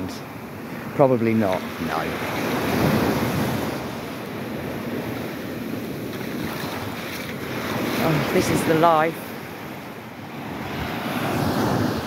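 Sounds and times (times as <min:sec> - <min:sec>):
waves washing up a sandy shore: 0:00.0 - 0:12.0.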